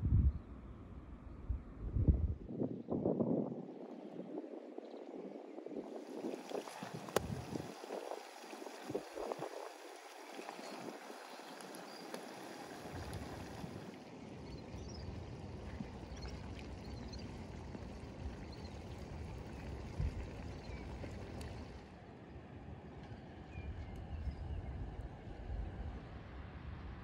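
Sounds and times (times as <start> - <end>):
steady low rumble: 0.0 - 2.7.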